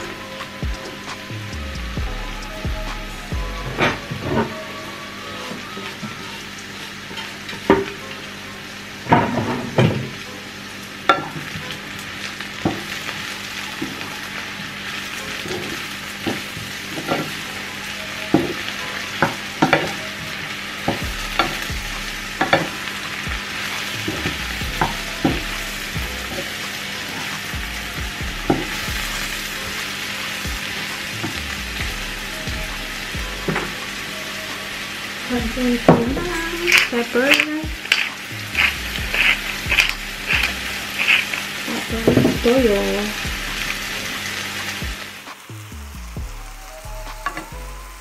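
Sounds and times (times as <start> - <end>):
mushrooms sizzling in a pan: 0.0 - 48.0
wooden spoon scraping a pan: 35.9 - 43.0.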